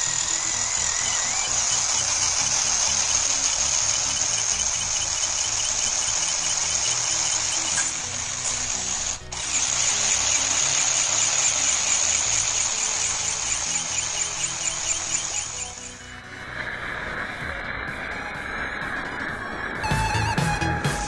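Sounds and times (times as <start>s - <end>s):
electric motor whining: 0.0s - 16.4s
background music: 0.0s - 21.0s.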